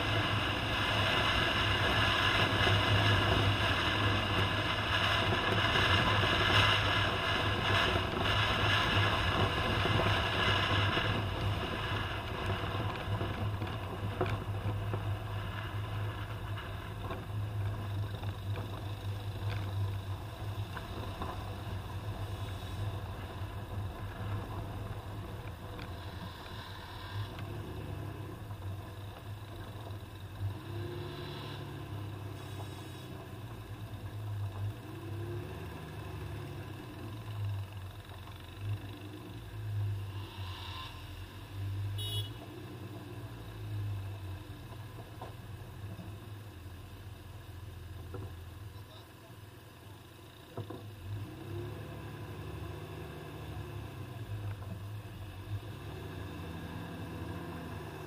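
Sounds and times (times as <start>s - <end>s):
low engine drone: 0.0s - 42.3s
road and wind noise: 0.0s - 58.0s.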